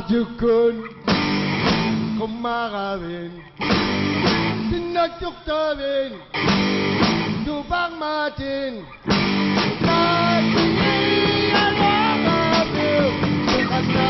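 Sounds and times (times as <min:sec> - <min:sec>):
electric guitar: 0:00.9 - 0:02.4, 0:03.4 - 0:05.0, 0:06.3 - 0:07.8, 0:09.0 - 0:14.0
bass guitar: 0:01.0 - 0:02.4, 0:03.6 - 0:05.0, 0:06.4 - 0:07.8, 0:09.0 - 0:14.0
person singing: 0:09.7 - 0:14.0.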